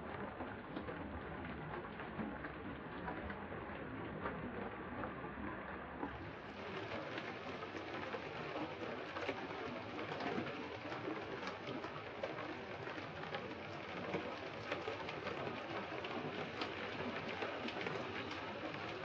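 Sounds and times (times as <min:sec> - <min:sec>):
heavy rain falling: 0:06.2 - 0:19.0.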